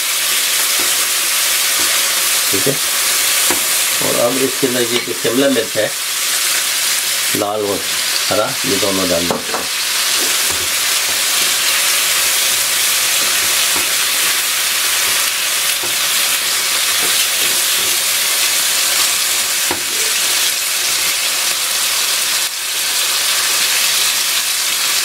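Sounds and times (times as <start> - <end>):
vegetables sizzling in a wok: 0.0 - 25.0
spatula knocking and scraping pan: 0.6 - 4.0, 9.2 - 20.5.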